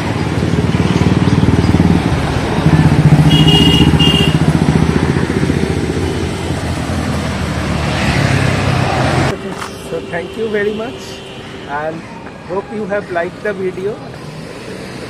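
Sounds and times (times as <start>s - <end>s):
vehicle engine running: 0.0s - 7.7s.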